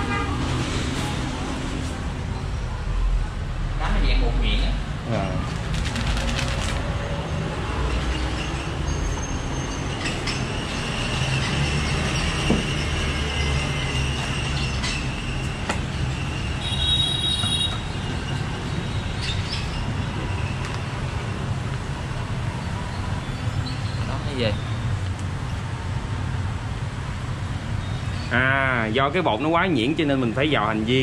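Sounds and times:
high-pitched squeal: 7.3s - 18.8s.

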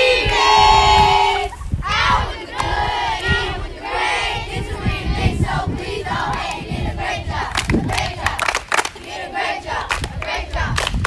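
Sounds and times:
children shouting and cheering: 0.0s - 8.3s
sharp claps: 7.5s - 9.1s, 9.8s - 11.0s.

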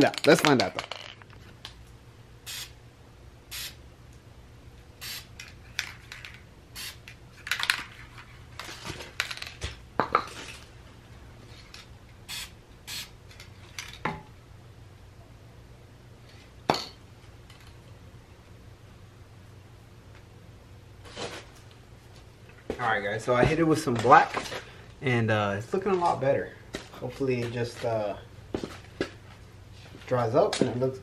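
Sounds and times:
spray paint hissing: 2.4s - 2.8s, 3.5s - 3.8s, 5.0s - 5.3s, 6.8s - 7.0s, 12.2s - 13.2s.

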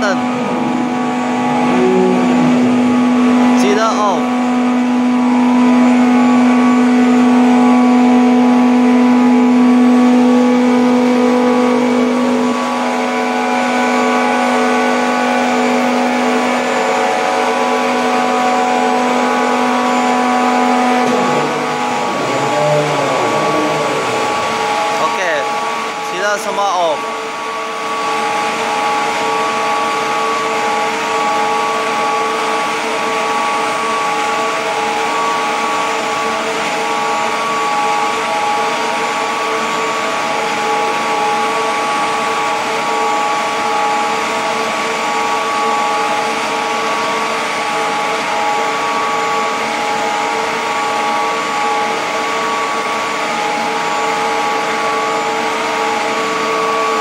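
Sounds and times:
electric pump motors humming: 0.0s - 57.0s.

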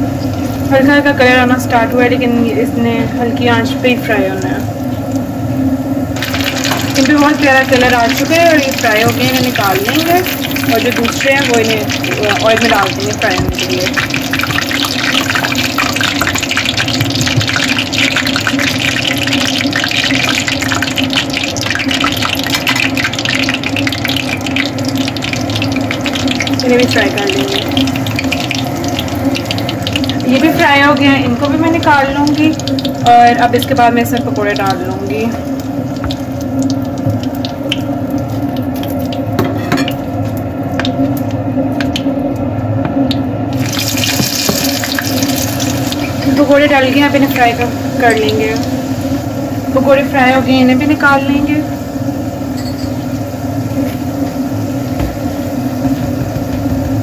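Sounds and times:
steady low hum: 0.0s - 43.9s
oil sizzling and crackling: 0.0s - 57.0s.

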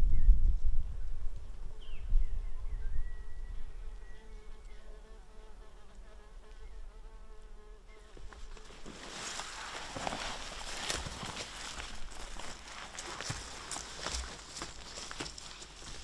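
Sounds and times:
rustling noise: 8.1s - 16.0s.

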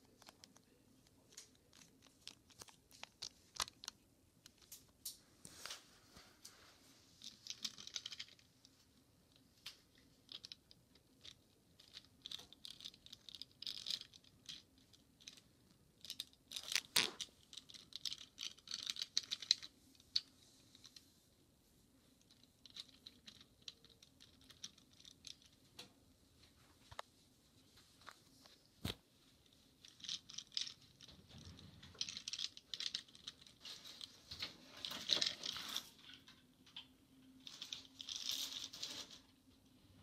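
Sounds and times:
toy cars scratching and clicking: 0.1s - 5.8s, 7.1s - 21.1s, 22.2s - 25.6s, 29.7s - 36.4s, 37.3s - 39.4s
toy cars clattering: 7.2s - 8.5s, 9.6s - 21.0s, 22.2s - 25.6s, 29.8s - 36.4s, 37.3s - 39.2s.

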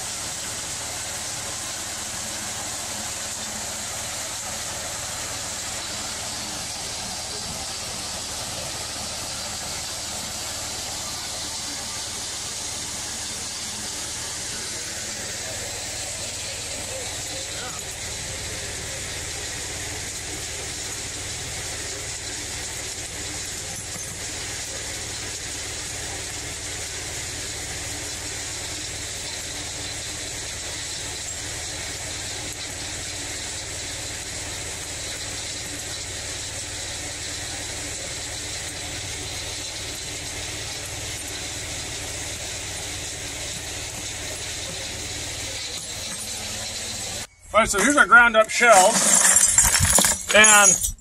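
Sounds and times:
hammer mill running: 0.0s - 51.0s
faint high whine: 44.7s - 51.0s.

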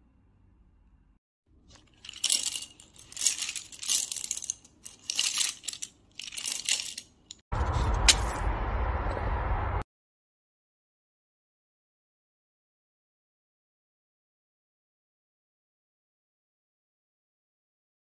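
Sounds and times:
paintbrushes clattering on tile: 1.7s - 7.4s.

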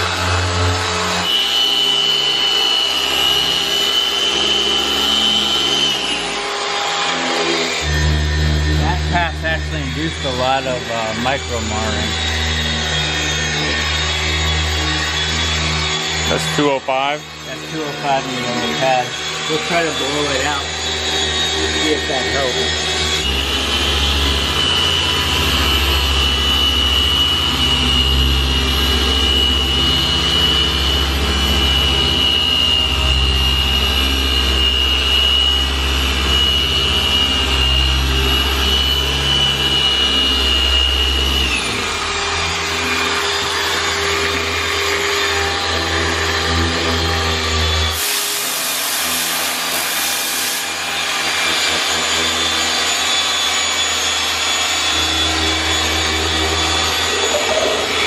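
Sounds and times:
electric polisher whining: 0.0s - 58.0s
sharp hiss of air: 48.0s - 50.7s.

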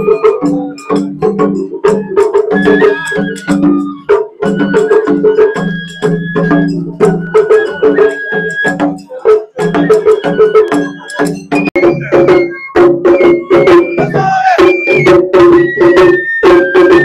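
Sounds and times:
held melody notes: 0.0s - 17.0s.

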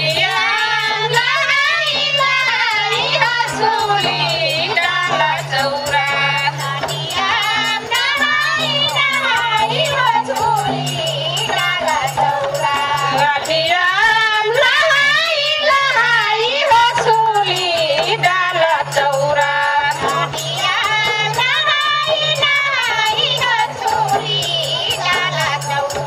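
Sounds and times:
barrel drum beat: 0.0s - 26.0s.

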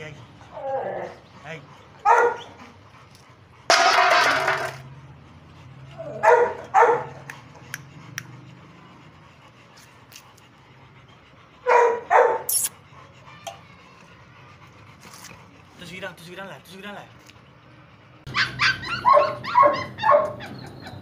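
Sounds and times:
dog barking: 2.0s - 2.5s, 6.0s - 7.3s, 11.6s - 12.5s, 18.3s - 20.4s.

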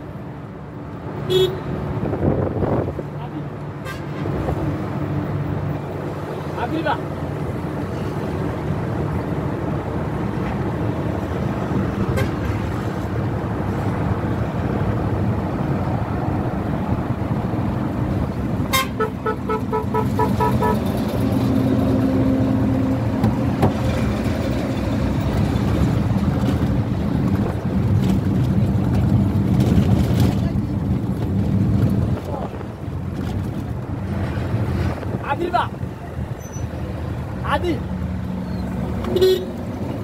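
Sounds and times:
road traffic and engine noise: 0.0s - 40.0s.

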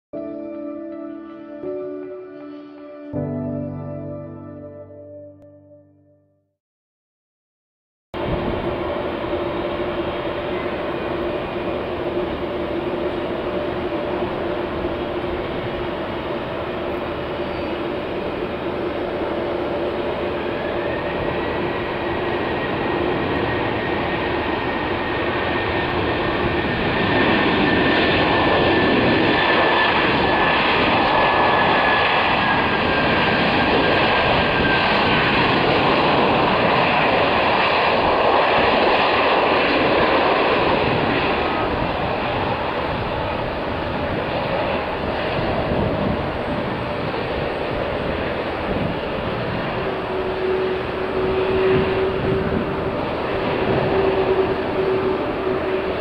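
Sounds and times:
jet engine whine: 8.2s - 56.0s.

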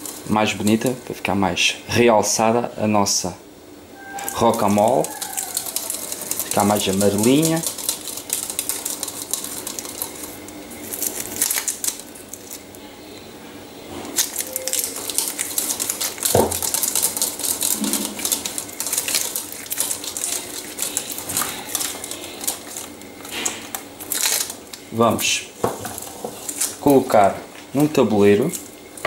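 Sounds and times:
whisk clicking and scraping in bowl: 4.2s - 12.0s, 14.4s - 24.1s.

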